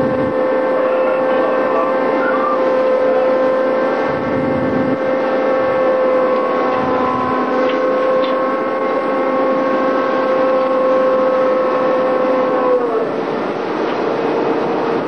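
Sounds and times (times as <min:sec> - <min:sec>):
ship engine drone: 0:00.0 - 0:15.0
water: 0:00.0 - 0:15.0
wind: 0:00.0 - 0:15.0.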